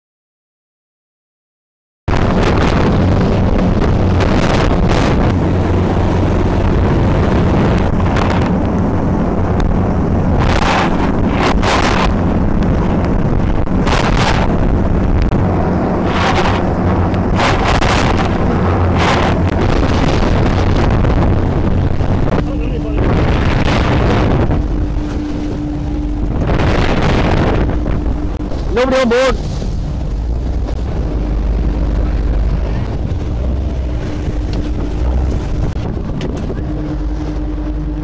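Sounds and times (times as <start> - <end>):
boat engines droning: 2.1 - 38.0
wind buffeting microphone: 2.1 - 38.0
hissing spray and breaking sea: 10.1 - 36.1.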